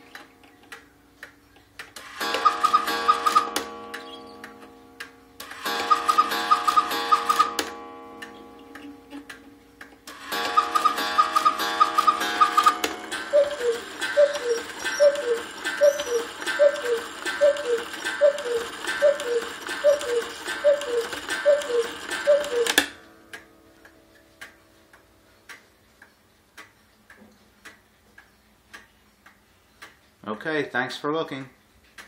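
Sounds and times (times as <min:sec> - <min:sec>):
cuckoo clock calling: 0:00.0 - 0:30.0
clock ticking: 0:00.0 - 0:30.2
quail clock bellows double notes: 0:02.0 - 0:24.0.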